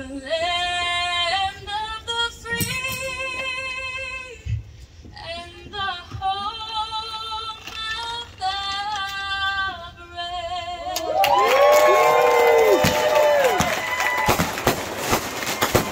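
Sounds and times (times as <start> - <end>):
woman singing into a microphone: 0.0 - 11.2
crowd cheering and whooping: 11.0 - 15.9.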